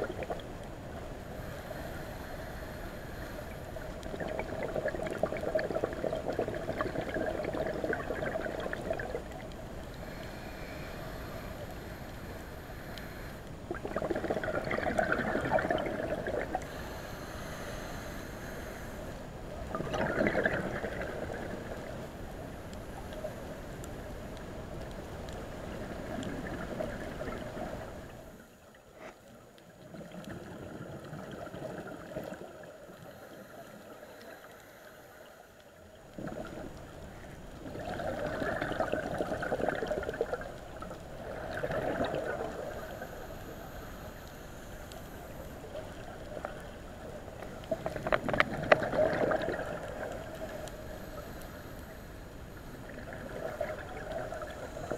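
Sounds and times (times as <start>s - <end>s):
air bubbles gurgling underwater: 0.0s - 0.7s, 3.5s - 10.2s, 13.6s - 16.7s, 19.6s - 22.0s, 25.6s - 28.3s, 29.8s - 33.9s, 36.0s - 43.7s, 44.9s - 51.5s, 52.8s - 54.9s
steady underwater hiss: 0.0s - 54.9s.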